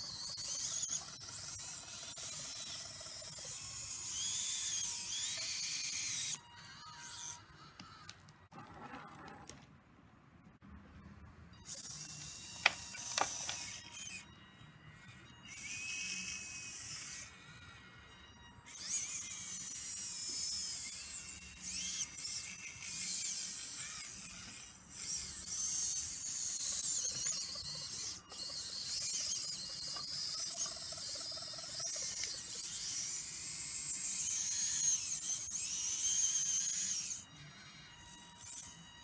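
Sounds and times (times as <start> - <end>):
high-pitched hydraulic pump whine: 11.6 - 39.0.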